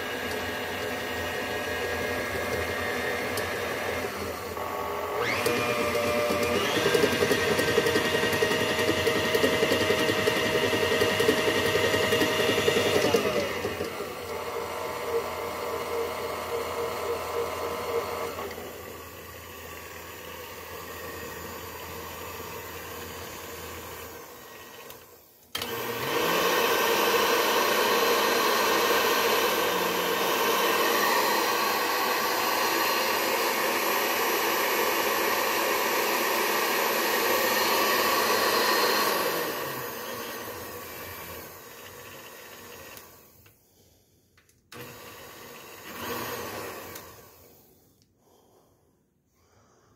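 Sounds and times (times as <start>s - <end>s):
stand mixer motor whining: 0.0s - 43.4s, 44.7s - 47.6s.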